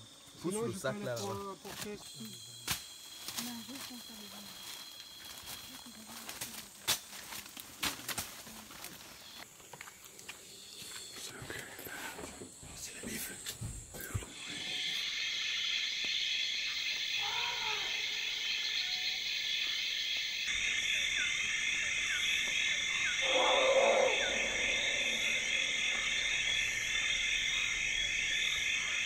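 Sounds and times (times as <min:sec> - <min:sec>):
chorus of calling animals: 0:14.2 - 0:29.0
loud animal call: 0:16.9 - 0:19.4, 0:20.5 - 0:29.0
high buzzing chorus: 0:20.5 - 0:29.0.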